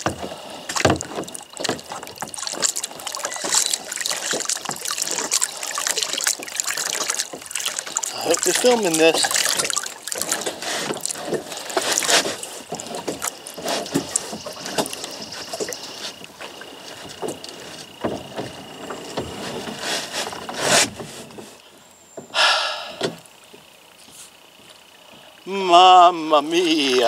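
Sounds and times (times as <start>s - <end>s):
kayak knocks and scrapes: 0.0s - 5.4s, 6.4s - 21.6s
paddle splashes: 0.0s - 21.6s, 24.8s - 27.0s.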